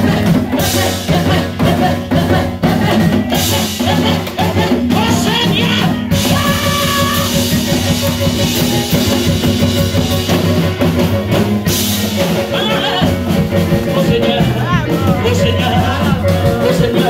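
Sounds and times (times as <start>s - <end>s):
drum kit beat: 0.0s - 17.0s
sustained bass notes: 0.0s - 17.0s
woman singing into microphone: 14.0s - 17.0s.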